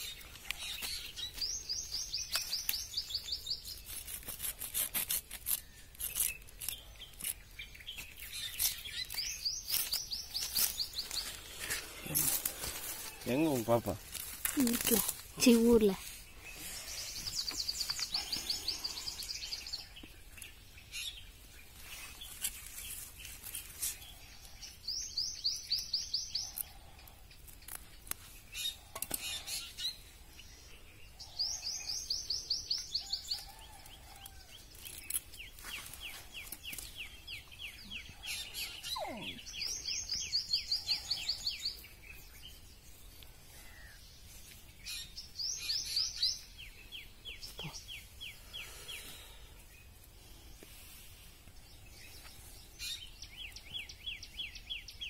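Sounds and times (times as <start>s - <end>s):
bird singing trilled phrases: 36.3s - 42.6s.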